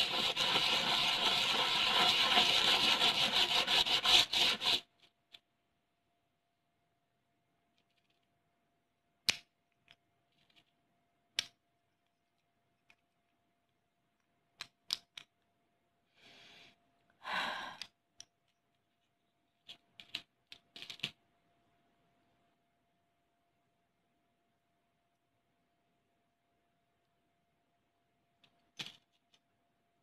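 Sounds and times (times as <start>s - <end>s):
hard pieces clicking together: 9.2s - 15.5s, 17.8s - 21.2s.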